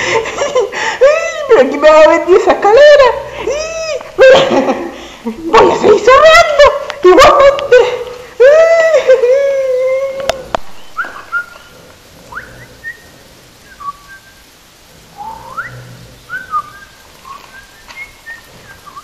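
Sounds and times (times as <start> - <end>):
whistle-like chirps: 10.8 - 11.7, 15.2 - 19.0.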